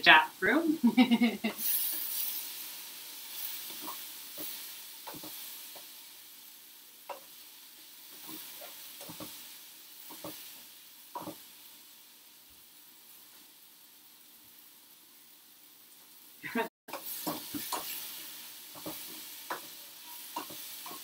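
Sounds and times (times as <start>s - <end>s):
mushrooms sizzling in oil: 0.0s - 21.0s
utensil knocking and scraping pan: 3.7s - 5.4s, 18.8s - 21.0s.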